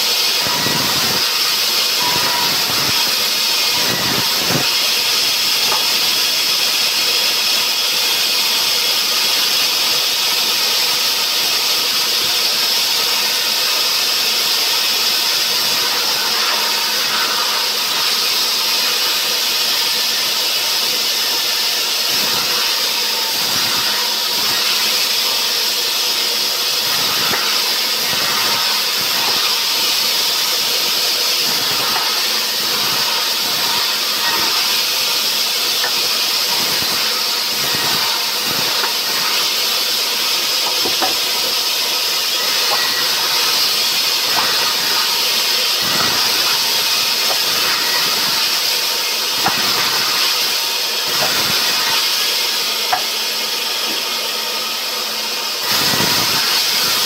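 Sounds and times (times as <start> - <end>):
band saw cutting through log: 0.0 - 57.0.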